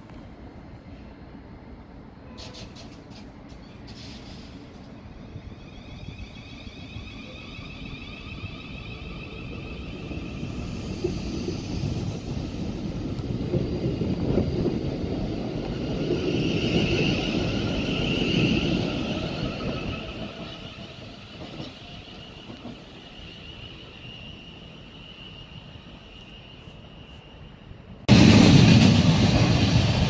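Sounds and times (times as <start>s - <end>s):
train wheel rumble: 0.0s - 30.0s.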